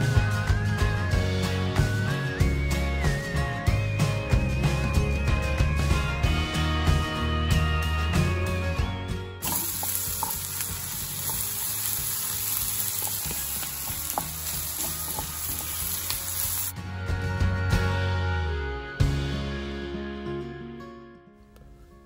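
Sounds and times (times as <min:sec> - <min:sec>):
music: 0:00.0 - 0:22.0
vegetables sizzling in a frying pan: 0:09.4 - 0:16.7
wooden spatula scraping and tapping: 0:09.5 - 0:16.7.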